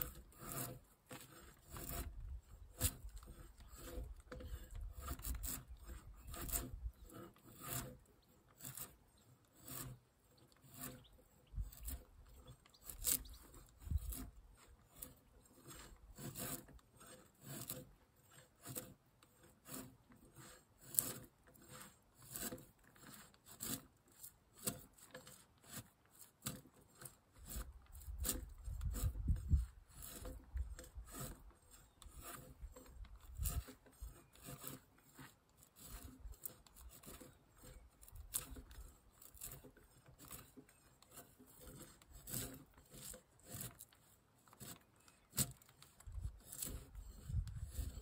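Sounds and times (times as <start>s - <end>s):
hand tool scraping wood: 0.0s - 48.0s.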